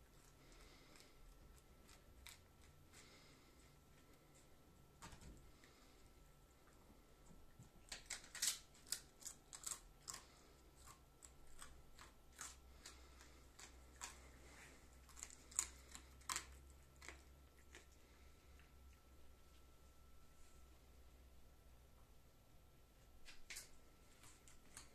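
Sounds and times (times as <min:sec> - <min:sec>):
fox crunching on something hard: 0:00.0 - 0:03.4, 0:07.5 - 0:18.7.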